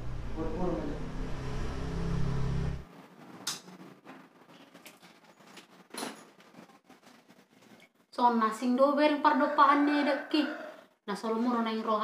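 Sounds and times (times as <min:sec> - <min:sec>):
low hum: 0:00.0 - 0:02.9.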